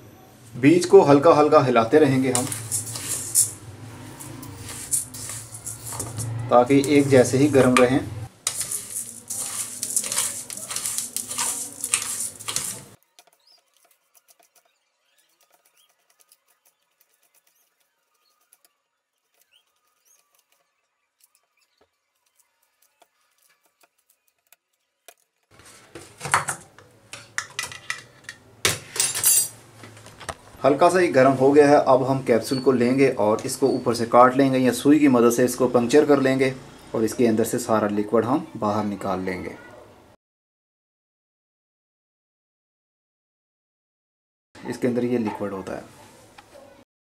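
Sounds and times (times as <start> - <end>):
spoon stirring seeds in metal pan: 2.1 - 14.7.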